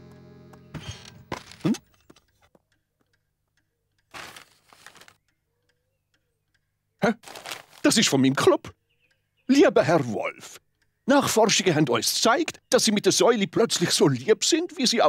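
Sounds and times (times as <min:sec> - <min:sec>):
paper rustling: 0:04.1 - 0:05.2, 0:07.2 - 0:07.9.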